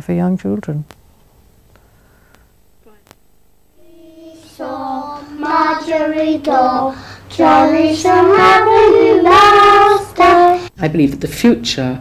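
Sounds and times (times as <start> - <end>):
child singing: 3.8 - 10.7.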